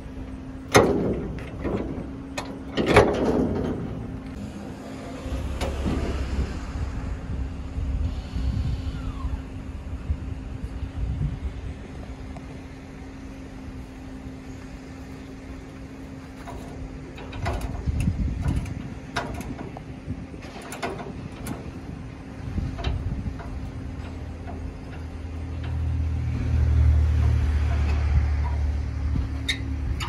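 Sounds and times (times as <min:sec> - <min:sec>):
steady low hum: 0:00.0 - 0:30.0
metal chains and latch clanking: 0:00.7 - 0:04.4, 0:16.4 - 0:19.8, 0:20.4 - 0:22.0
sharp metal knocks: 0:00.7 - 0:04.4.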